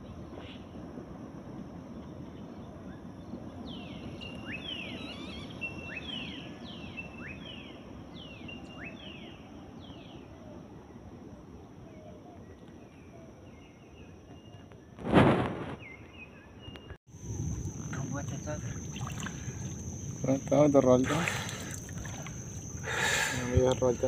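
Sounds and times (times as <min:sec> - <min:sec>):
low steady hum: 0:17.2 - 0:24.0.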